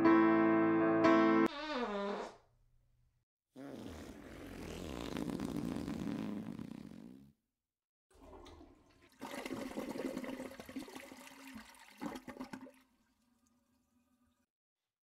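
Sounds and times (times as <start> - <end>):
toilet flushing: 8.1 - 14.4.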